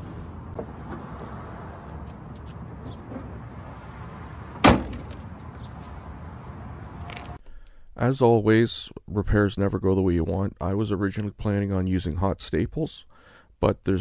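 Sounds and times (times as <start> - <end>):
van hood slamming shut: 4.6 - 5.3.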